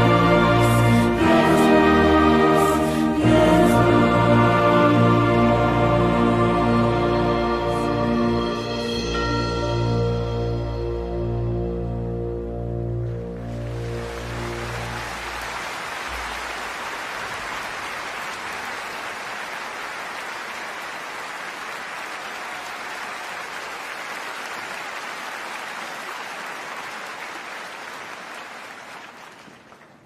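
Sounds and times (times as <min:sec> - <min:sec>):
audience applauding: 0:13.3 - 0:30.0.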